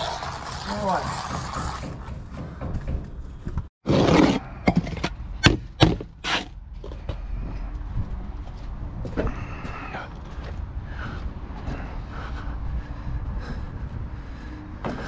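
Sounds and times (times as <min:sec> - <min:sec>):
trowel scraping mortar board: 0:00.0 - 0:02.1, 0:03.8 - 0:05.1, 0:05.9 - 0:06.6
construction site noise: 0:00.0 - 0:15.0
wind: 0:00.0 - 0:15.0.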